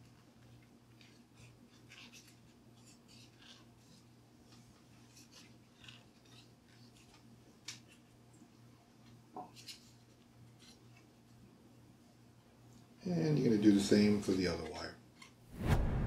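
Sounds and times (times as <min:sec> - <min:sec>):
small clicks and scratches of wires: 0:00.0 - 0:11.4, 0:14.3 - 0:15.4
steady low hum: 0:15.5 - 0:16.0.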